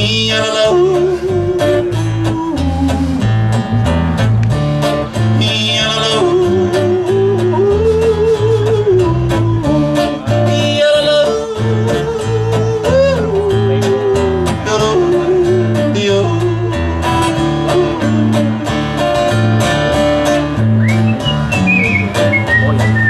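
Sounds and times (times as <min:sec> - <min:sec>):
country band playing: 0:00.0 - 0:23.0
whistled melody: 0:20.7 - 0:23.0.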